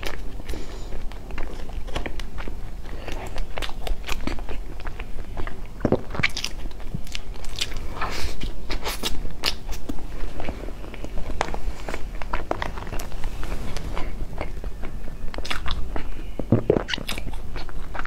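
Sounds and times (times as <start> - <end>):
wet chewing with crunches: 0.0 - 18.0.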